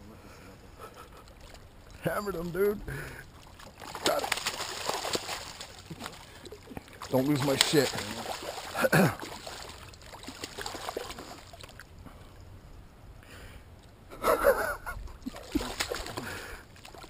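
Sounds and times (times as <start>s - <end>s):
fish splashing in water: 3.2s - 11.9s, 15.2s - 17.0s.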